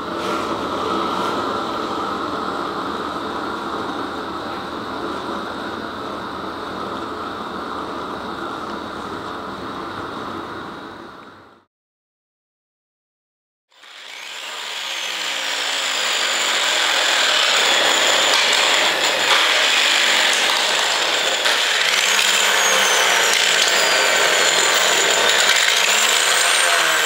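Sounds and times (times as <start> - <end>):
angle grinder grinding metal: 13.7 - 27.0
high whining tones: 16.2 - 25.4.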